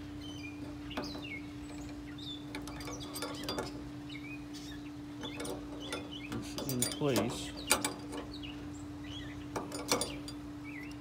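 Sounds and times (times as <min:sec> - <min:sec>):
steady low hum: 0:00.0 - 0:11.0
pliers clicking on metal hook: 0:05.4 - 0:08.3.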